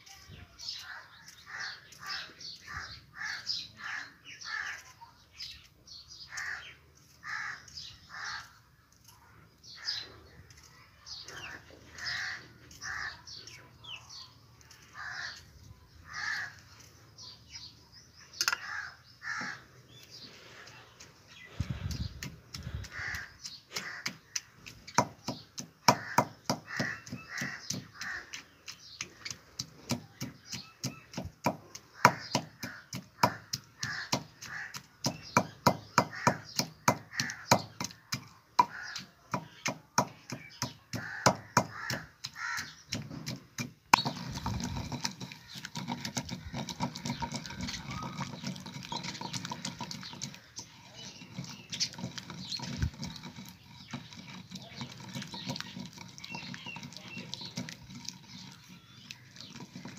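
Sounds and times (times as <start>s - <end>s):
pestle grinding in mortar: 0.6s - 8.7s, 9.7s - 59.9s
pestle pounding in stone mortar: 21.6s - 59.9s.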